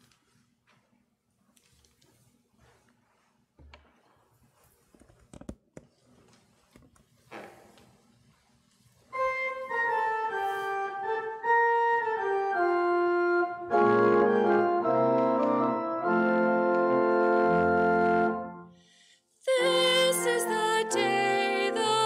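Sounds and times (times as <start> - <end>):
church organ playing: 9.1 - 18.8, 19.5 - 22.0.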